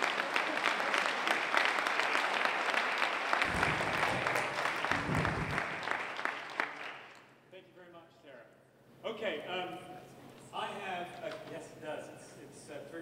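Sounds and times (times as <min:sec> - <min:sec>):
audience applauding: 0:00.0 - 0:07.3
low rumble: 0:03.4 - 0:06.1.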